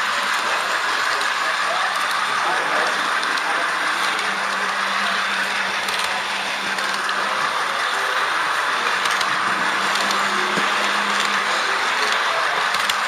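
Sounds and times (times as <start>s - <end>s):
model train motor whirring: 0.0s - 13.0s
wheels rolling on track: 0.0s - 13.0s.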